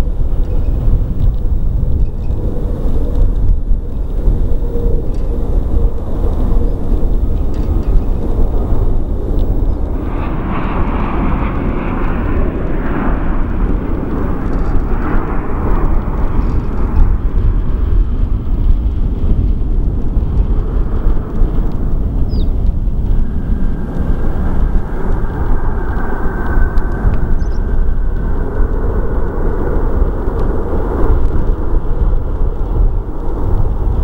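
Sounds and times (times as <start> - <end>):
high engine whine: 0.0 - 34.0
low rumble: 0.0 - 34.0
hissing jet roar: 8.4 - 34.0.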